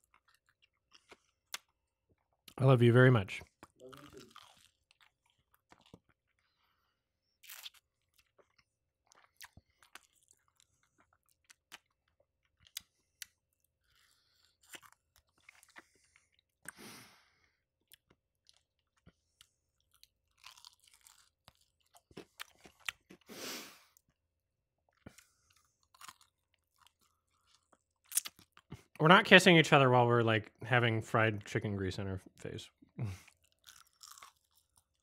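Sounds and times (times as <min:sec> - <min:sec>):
wet chewing: 0:03.4 - 0:06.5, 0:07.4 - 0:16.8, 0:17.9 - 0:23.3, 0:24.9 - 0:29.0, 0:33.2 - 0:35.0
fried chicken crunching: 0:03.6 - 0:06.2, 0:07.4 - 0:16.0, 0:19.8 - 0:23.2, 0:25.1 - 0:28.8, 0:33.2 - 0:35.0.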